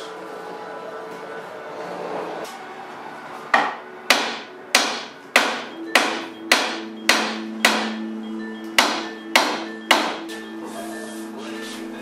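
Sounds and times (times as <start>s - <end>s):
hammer striking steel: 3.5s - 8.1s, 8.7s - 10.4s.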